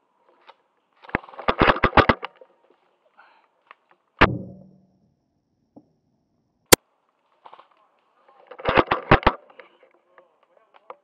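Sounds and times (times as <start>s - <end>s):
low thud: 4.2s - 5.1s.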